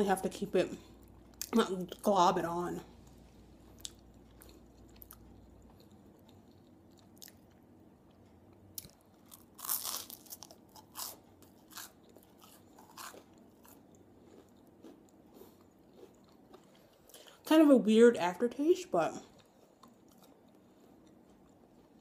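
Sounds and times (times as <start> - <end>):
chewing crunches: 3.7 - 8.2, 8.8 - 17.4, 19.3 - 22.0
crunching toast: 8.8 - 17.3.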